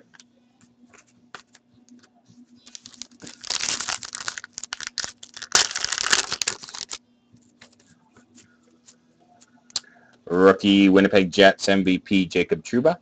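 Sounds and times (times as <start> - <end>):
wrapper crinkling and tearing: 2.6 - 7.0.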